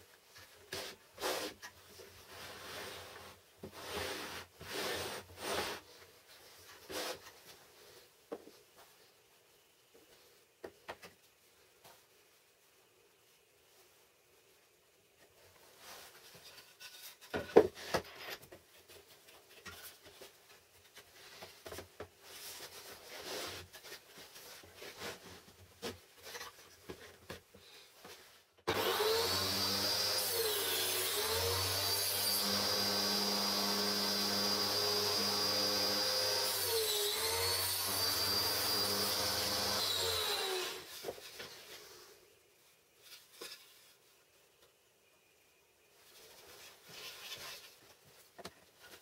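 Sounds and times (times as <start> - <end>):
table saw whining: 28.7 - 40.9.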